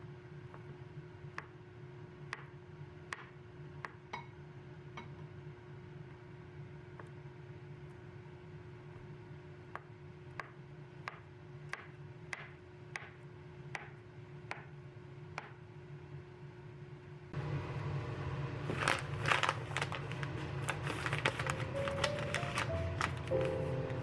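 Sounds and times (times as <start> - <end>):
plastic package rustling: 18.6 - 24.0.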